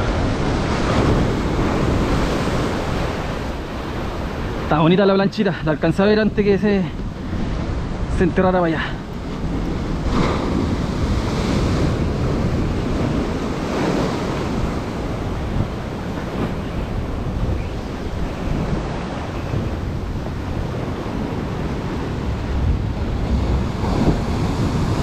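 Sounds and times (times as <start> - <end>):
surf washing onto shore: 0.0 - 25.0
wind buffeting microphone: 0.0 - 25.0.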